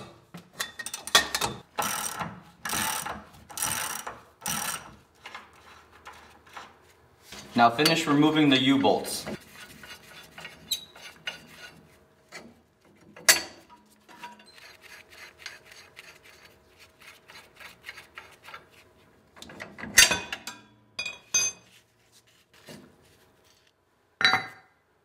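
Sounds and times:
metal nuts scraping on threads: 0:09.8 - 0:11.8, 0:14.1 - 0:18.6.

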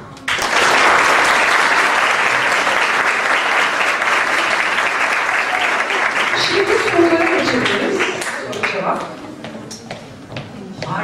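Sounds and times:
audience applauding: 0:00.2 - 0:09.0.

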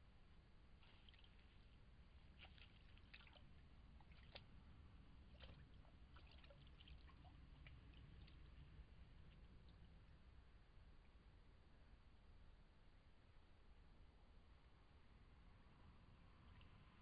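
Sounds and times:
faint water drips and splashes: 0:00.4 - 0:11.7, 0:16.1 - 0:17.0.

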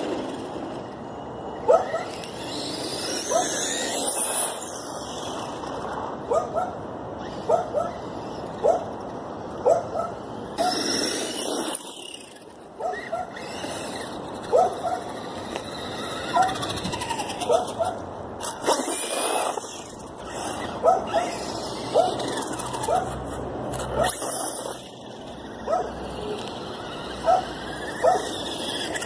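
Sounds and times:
faint high electric motor whine: 0:06.9 - 0:29.0
dog barking: 0:09.6 - 0:10.1, 0:12.8 - 0:13.3, 0:14.5 - 0:15.0, 0:20.8 - 0:21.3, 0:25.7 - 0:25.9, 0:27.2 - 0:28.3.

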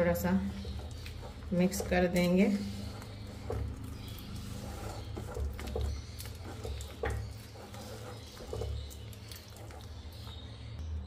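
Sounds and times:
hand squelching sticky batter: 0:00.0 - 0:10.8.

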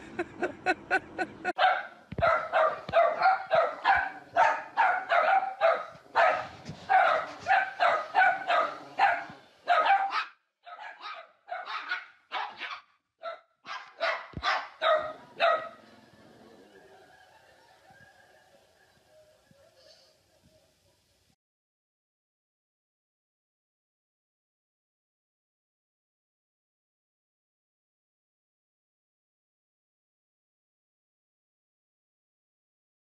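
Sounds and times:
small dog yapping: 0:01.6 - 0:12.9.

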